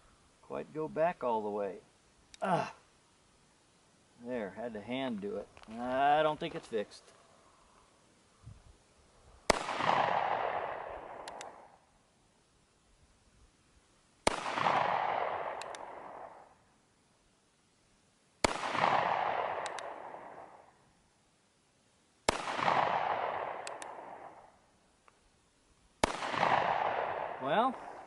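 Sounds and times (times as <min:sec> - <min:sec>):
revolver gunshots with echo: 0:09.5 - 0:11.7, 0:14.2 - 0:16.5, 0:18.4 - 0:20.7, 0:22.3 - 0:24.5, 0:26.0 - 0:28.0.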